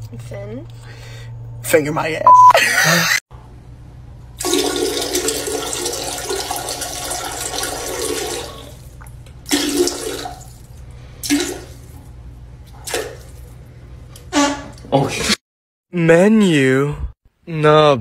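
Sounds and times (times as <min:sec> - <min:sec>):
toilet flushing: 0:04.4 - 0:12.1.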